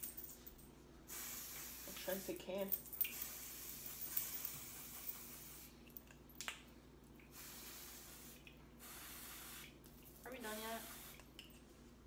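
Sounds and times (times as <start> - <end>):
aerosol spray hissing: 1.1 - 2.4, 3.1 - 5.8, 7.3 - 9.8, 10.4 - 11.3.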